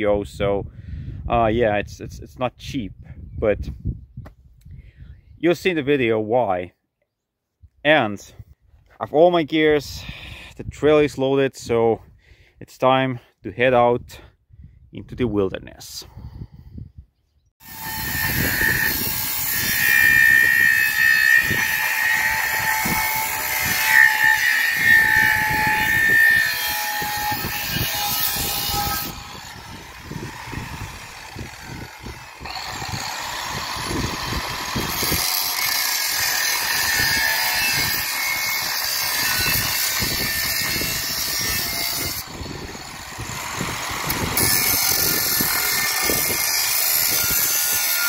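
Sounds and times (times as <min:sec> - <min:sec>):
angle grinder cutting steel: 0:17.6 - 0:48.0.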